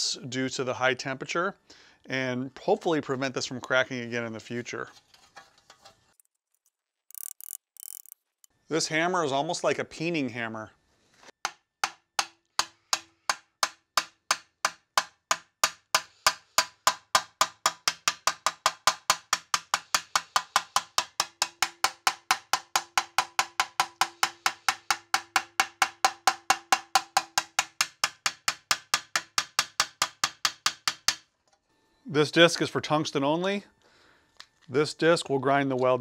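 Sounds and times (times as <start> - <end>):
hammer tapping on sheet metal: 11.4 - 31.3.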